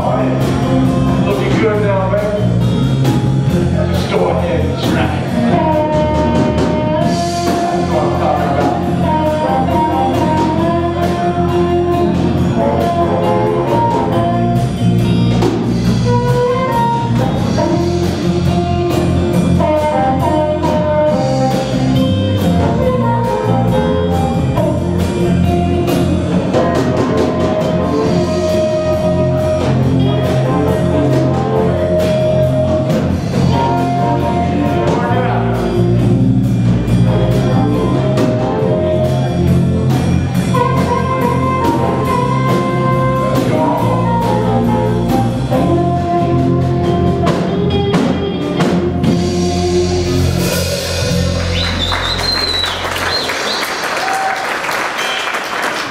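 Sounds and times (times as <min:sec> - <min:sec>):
keyboard: 0:00.0 - 0:54.0
electric guitar: 0:00.0 - 0:54.4
drum kit: 0:00.0 - 0:55.9
audience cheering: 0:51.0 - 0:55.9
audience applause: 0:51.1 - 0:55.9.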